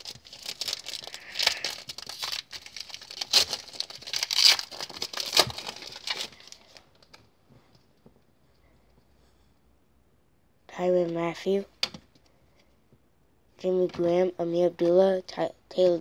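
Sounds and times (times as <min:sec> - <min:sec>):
wrapper tearing and crinkling: 0:00.0 - 0:07.1.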